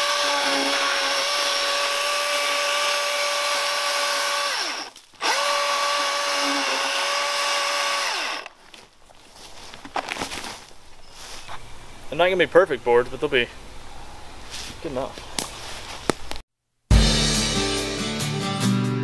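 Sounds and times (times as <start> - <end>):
electric chainsaw cutting wood: 0.0 - 8.5.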